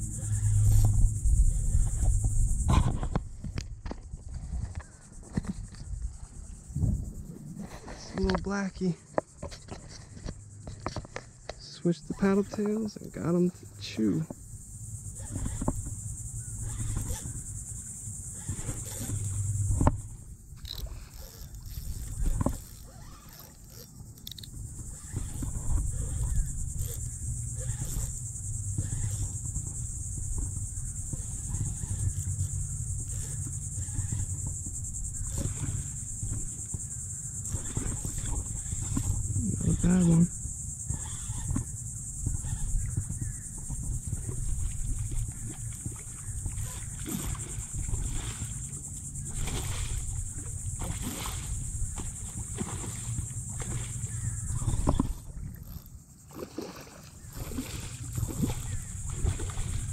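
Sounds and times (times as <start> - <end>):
low rumbling noise: 0.0 - 4.8
wind rumble on microphone: 0.0 - 23.3, 24.0 - 56.2, 57.2 - 59.9
insects buzzing high-pitched: 0.0 - 59.9
water sloshing around kayak: 0.0 - 59.9.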